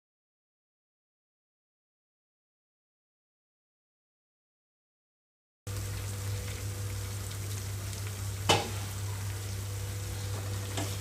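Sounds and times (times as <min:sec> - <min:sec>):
low steady hum: 0:05.7 - 0:11.0
onions sizzling in hot oil: 0:05.7 - 0:11.0
sharp pop of oil: 0:08.5 - 0:08.8.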